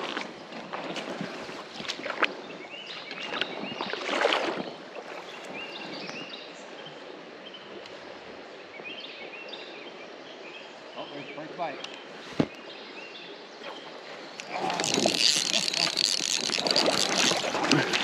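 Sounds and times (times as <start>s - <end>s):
water sloshing around legs: 0.0s - 2.4s, 3.0s - 5.8s, 13.6s - 18.0s
birds chirping: 10.6s - 18.0s
water splashing: 13.6s - 18.0s.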